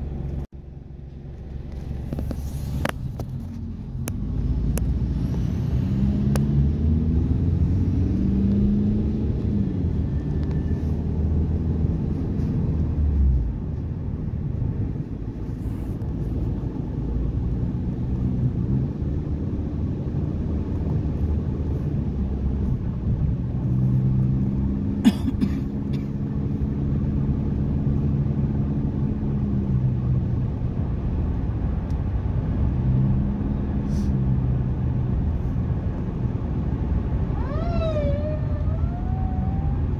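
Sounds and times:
car engine and road rumble: 0:00.0 - 0:39.9
heavy trucks passing: 0:01.8 - 0:27.3.

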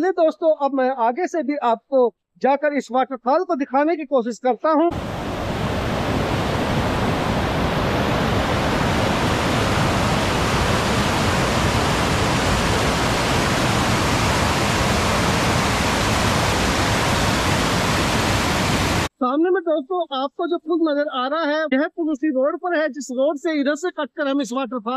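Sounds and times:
waterfall rushing: 0:04.9 - 0:19.1.

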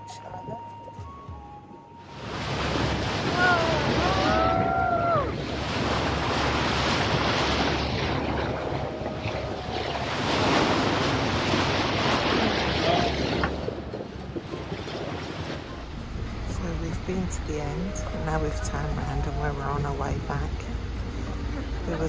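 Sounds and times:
water rushing along boat hull: 0:01.1 - 0:22.0
wind buffeting microphone: 0:02.2 - 0:22.0
low engine hum: 0:03.4 - 0:22.0.

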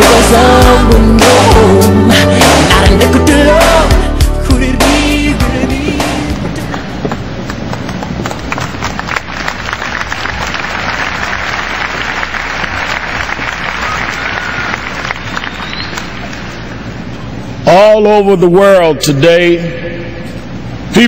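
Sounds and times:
song ending: 0:00.0 - 0:06.9
crowd applauding: 0:06.6 - 0:16.4.

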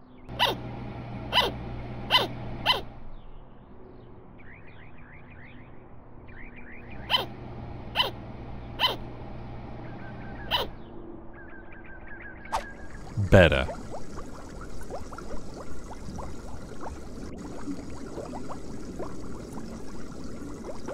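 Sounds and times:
sugar glider barking: 0:00.3 - 0:00.6, 0:01.3 - 0:02.9, 0:07.0 - 0:08.2, 0:08.8 - 0:09.0, 0:10.4 - 0:10.8.

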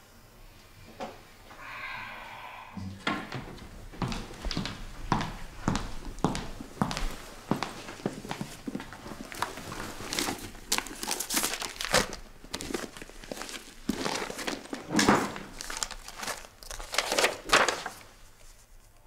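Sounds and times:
paper rustling and crinkling: 0:07.9 - 0:19.0.

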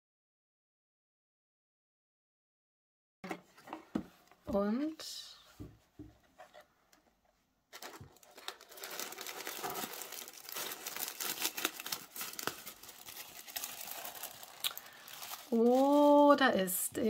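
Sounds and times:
tissue paper crinkling: 0:07.7 - 0:16.7.

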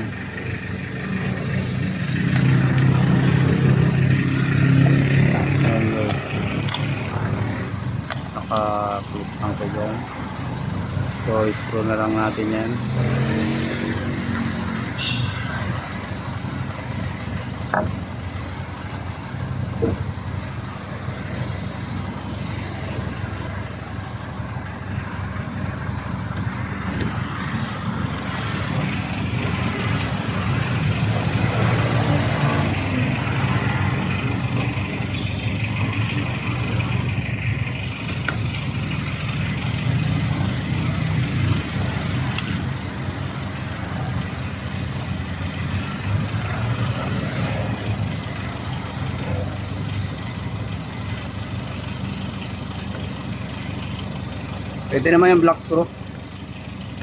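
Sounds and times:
vehicle engine idling: 0:00.0 - 0:57.0.

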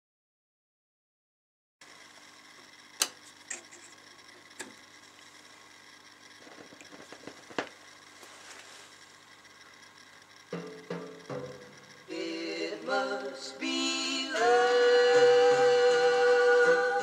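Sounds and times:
faint hum: 0:01.8 - 0:17.0.

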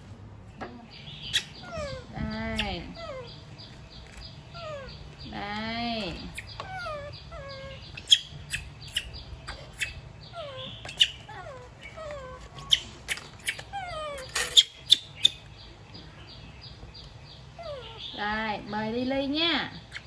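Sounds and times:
baby monkey high calls: 0:00.8 - 0:15.6, 0:17.5 - 0:18.2, 0:19.7 - 0:20.0
leaf wrapper crackling: 0:03.6 - 0:05.2.

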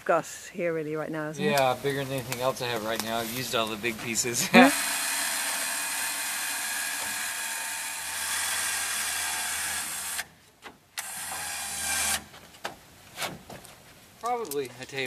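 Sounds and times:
electric hoist motor running: 0:04.4 - 0:10.3, 0:11.0 - 0:12.3.

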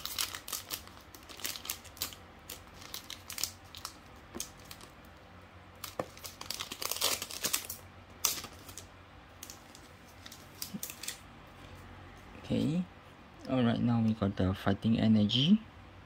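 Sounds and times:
foil wrapper crinkling and tearing: 0:00.0 - 0:05.2, 0:05.8 - 0:11.2.

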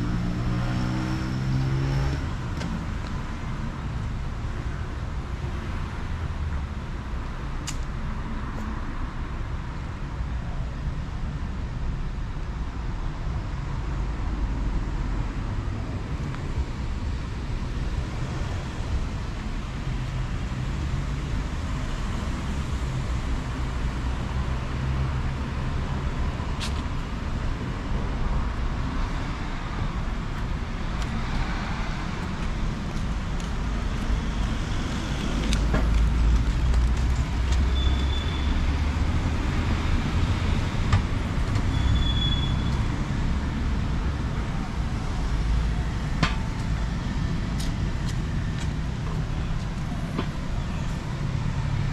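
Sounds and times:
road traffic rumble: 0:00.0 - 0:51.9.

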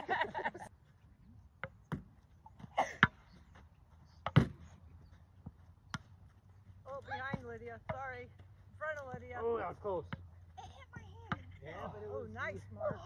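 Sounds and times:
ball bouncing: 0:01.5 - 0:03.4, 0:04.2 - 0:04.8, 0:05.4 - 0:13.0
paddles hitting ball: 0:01.6 - 0:03.4, 0:04.2 - 0:04.7.

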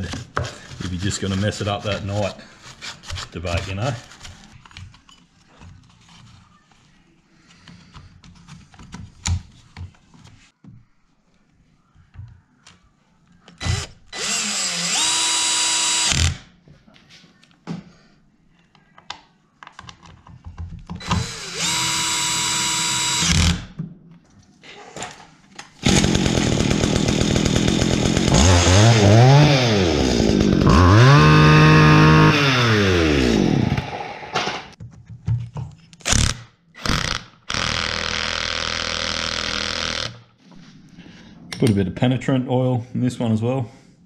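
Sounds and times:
cordless drill running: 0:13.6 - 0:16.4, 0:21.0 - 0:23.6, 0:25.8 - 0:34.4, 0:36.8 - 0:40.2
two-stroke trimmer engine revving: 0:25.8 - 0:34.5.

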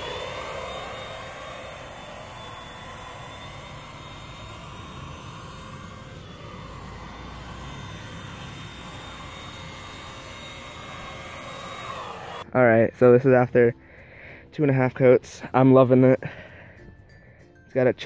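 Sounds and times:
spray hiss: 0:00.0 - 0:12.4
paint sprayer motor whine: 0:00.0 - 0:12.5.

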